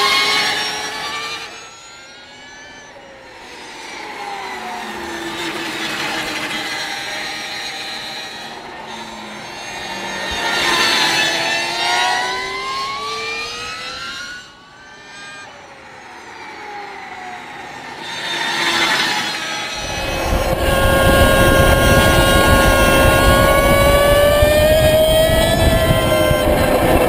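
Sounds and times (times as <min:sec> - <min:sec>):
electric motorcycle whine: 0:00.0 - 0:27.0
wind noise: 0:19.8 - 0:27.0.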